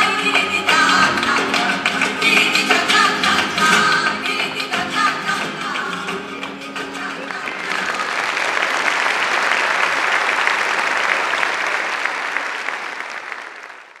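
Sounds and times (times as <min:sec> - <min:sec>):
music: 0:00.0 - 0:08.0
audience applauding: 0:00.0 - 0:14.0.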